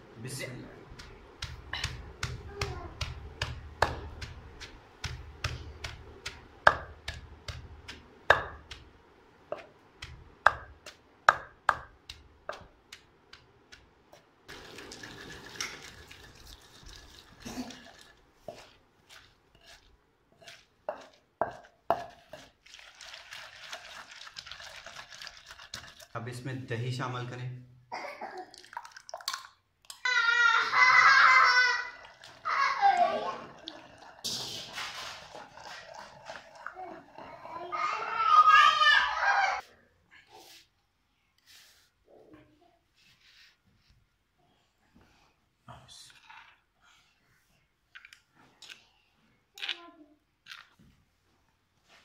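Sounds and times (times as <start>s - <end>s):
pestle grinding hiss: 0.9s - 22.6s
pestle knocking in mortar: 1.0s - 13.8s, 20.4s - 22.4s.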